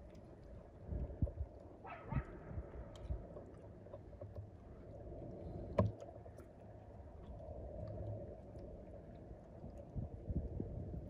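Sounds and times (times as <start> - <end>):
wind on microphone: 9.9 - 11.0.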